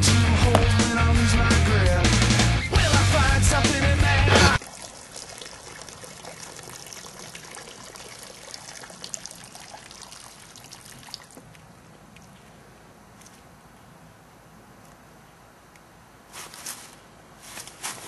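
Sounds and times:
urine splashing into water: 0:04.6 - 0:11.4.

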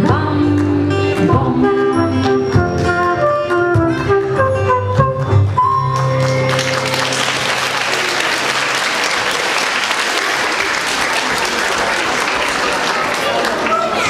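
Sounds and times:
audience applause: 0:06.0 - 0:14.0.

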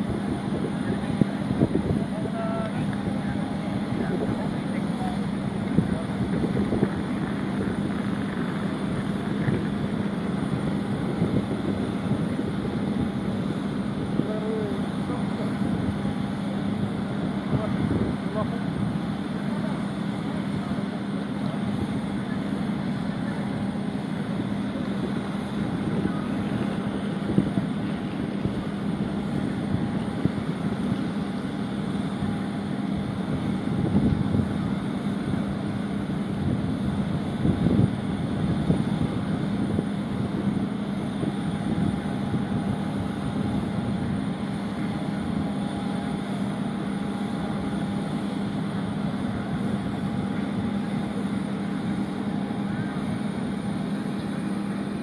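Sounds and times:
wind buffeting microphone: 0:00.0 - 0:19.3, 0:23.8 - 0:47.8
machinery droning: 0:00.0 - 0:55.0
faint murmur of voices: 0:00.4 - 0:13.0, 0:14.0 - 0:36.3, 0:37.3 - 0:55.0.

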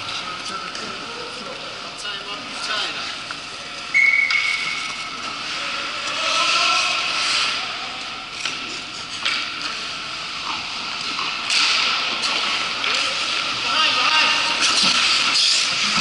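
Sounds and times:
referee's whistle: 0:03.9 - 0:04.9
skates scraping ice: 0:04.4 - 0:16.0.

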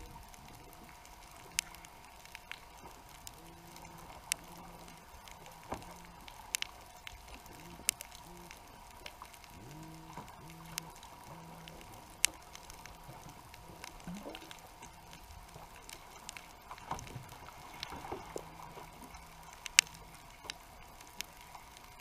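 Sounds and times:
faint steady whine: 0:00.0 - 0:22.0
low hum: 0:00.0 - 0:22.0
sharp underwater clicks: 0:00.0 - 0:22.0.

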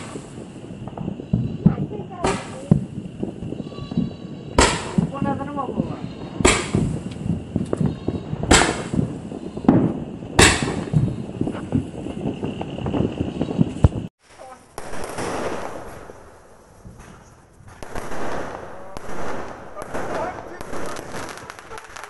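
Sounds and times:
crackling hiss of sparks: 0:00.0 - 0:22.0
fireworks bangs: 0:00.0 - 0:22.0.

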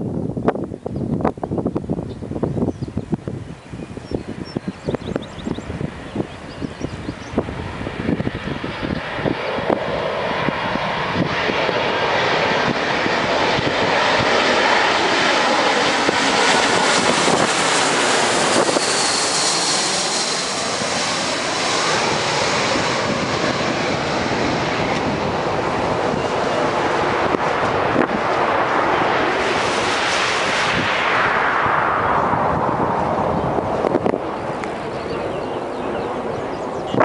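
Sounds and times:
jet airliner passing overhead: 0:00.0 - 0:37.0
faint high jet whine: 0:01.9 - 0:37.0.

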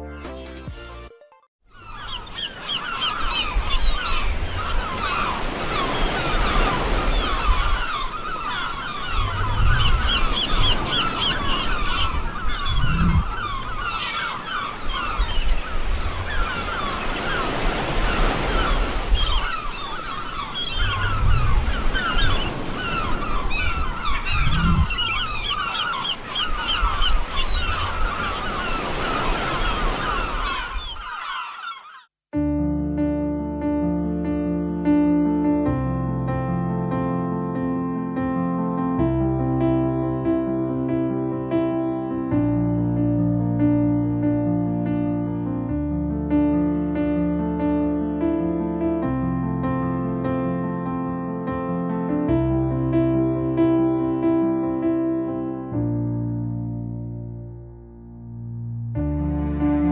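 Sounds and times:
flock of birds calling: 0:01.7 - 0:32.1
sea waves breaking on beach: 0:02.2 - 0:31.2.

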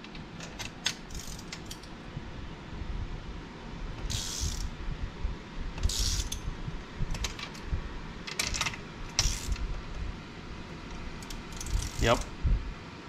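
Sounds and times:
ratchet wrench clicking: 0:00.6 - 0:01.9, 0:04.1 - 0:04.7, 0:05.8 - 0:06.4, 0:08.3 - 0:09.6, 0:11.2 - 0:12.3.

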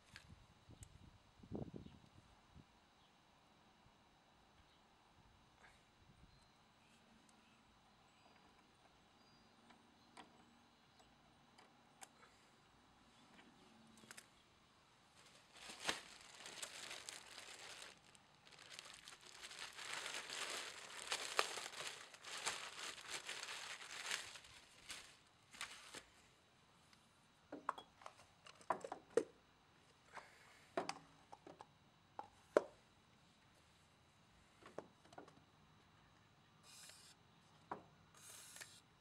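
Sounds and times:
plastic bag crinkling and tearing: 0:15.2 - 0:26.1.

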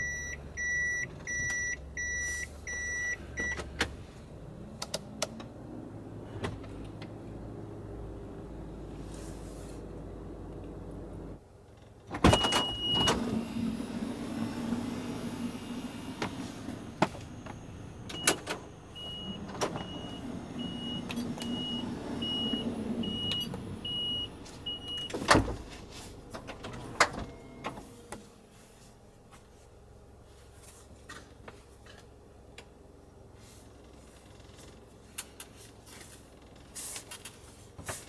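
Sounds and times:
high warning beeps: 0:00.0 - 0:03.6, 0:17.4 - 0:25.2
low outside hum: 0:00.0 - 0:38.0.

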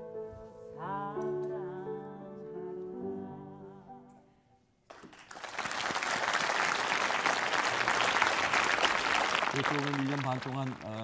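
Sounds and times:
audience applause: 0:04.9 - 0:11.0.

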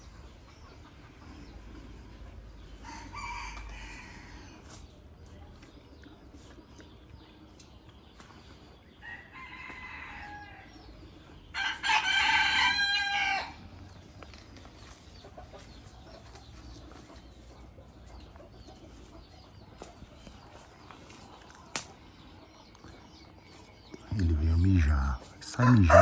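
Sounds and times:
rooster crowing: 0:09.0 - 0:10.8, 0:11.6 - 0:13.6, 0:25.6 - 0:26.0.

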